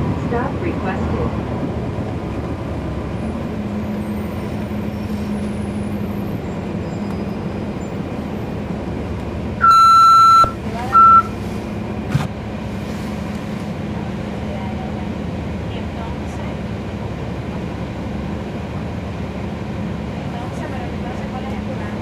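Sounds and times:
bus diesel engine running: 0:00.0 - 0:22.0
high electronic beep: 0:09.6 - 0:11.3.

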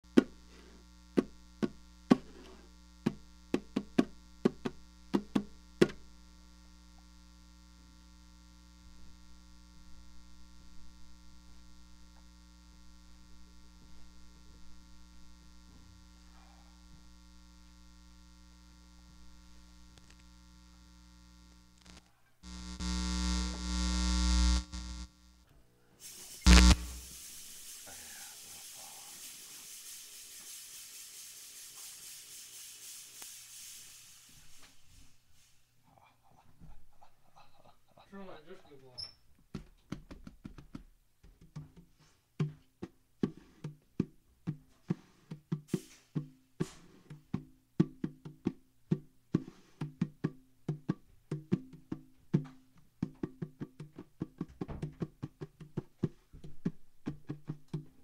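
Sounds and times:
electrical mains hum: 0:00.0 - 0:29.6
loud buzzing noise: 0:17.1 - 0:25.4, 0:26.4 - 0:27.1.

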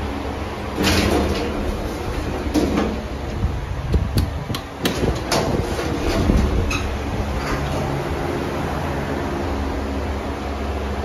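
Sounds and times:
low machine hum: 0:00.0 - 0:11.0
lift door gear clicks and clunks: 0:00.8 - 0:08.2.

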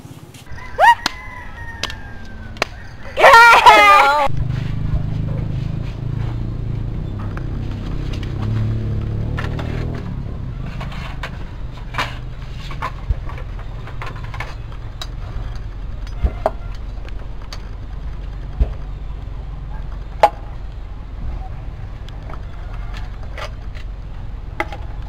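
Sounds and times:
steady low rumble: 0:04.2 - 0:25.0.

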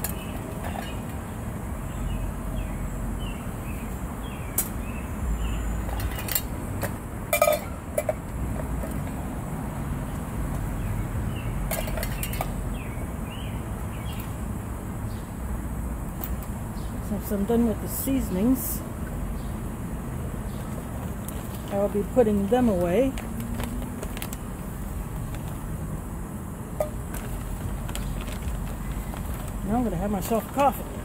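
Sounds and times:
low outdoor rumble: 0:00.0 - 0:31.0
spice containers and utensils clinking: 0:07.3 - 0:08.2, 0:11.7 - 0:12.5.

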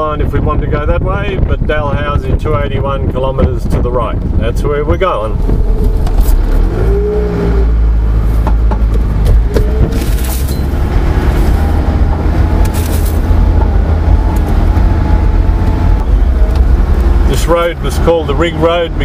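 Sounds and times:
vehicle engine and road rumble: 0:00.0 - 0:19.0
knocks and rattles: 0:08.3 - 0:17.0.

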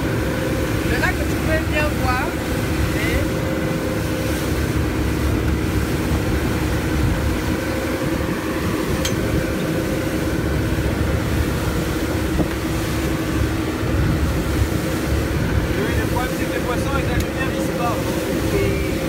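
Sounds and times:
outboard motor drone: 0:00.0 - 0:19.0
wind and water rushing: 0:00.0 - 0:19.0.

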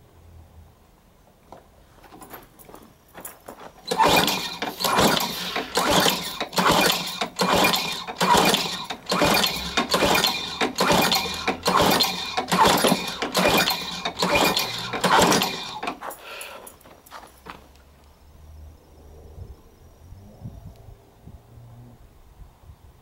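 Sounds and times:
lawnmower engine pull-start cranking: 0:03.8 - 0:16.6.

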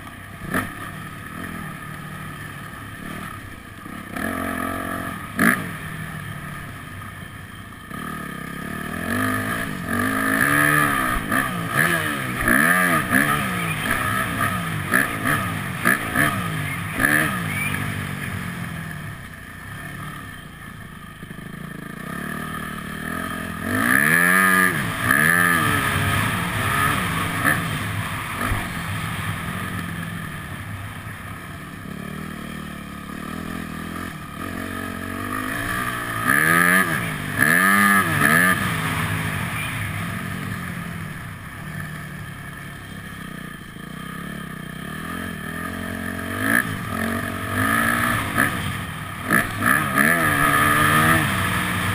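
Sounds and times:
motocross bike engine revving: 0:00.0 - 0:06.8, 0:07.8 - 0:20.5, 0:21.2 - 0:51.9.

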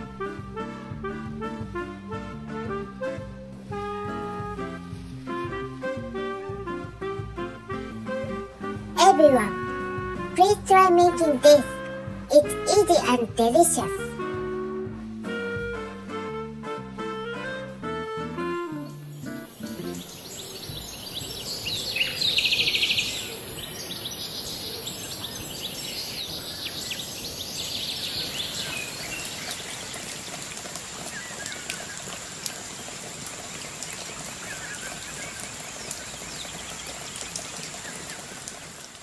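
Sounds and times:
birds chirping: 0:12.3 - 0:14.1, 0:18.7 - 0:38.4
loud trilling bird call: 0:19.6 - 0:29.3.

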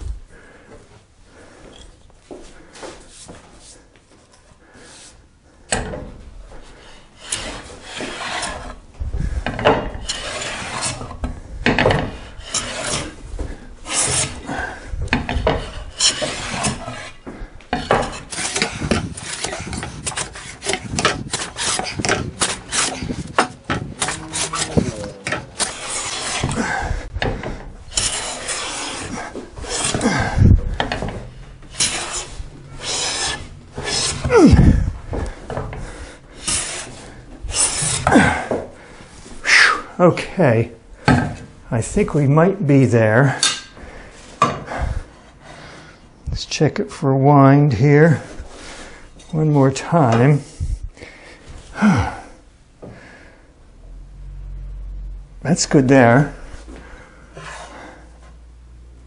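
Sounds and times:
hand plane shaving wood: 0:06.7 - 0:11.3, 0:12.0 - 0:31.1, 0:31.7 - 0:38.6.

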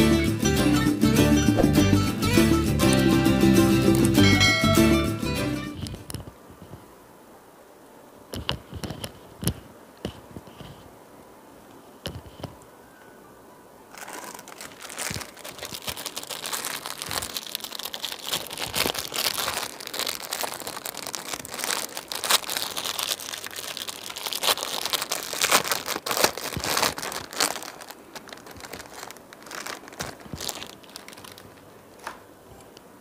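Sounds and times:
packaging crinkling: 0:13.9 - 0:32.3.

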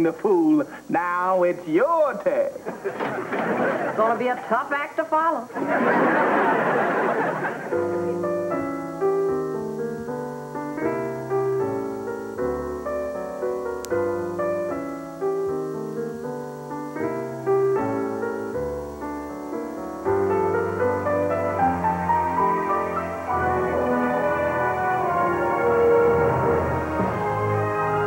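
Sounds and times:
slow piano music: 0:06.9 - 0:28.0.

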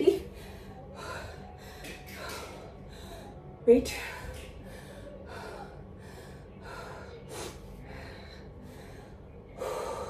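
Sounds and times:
woman breathing hard: 0:00.2 - 0:03.6, 0:04.3 - 0:10.0.

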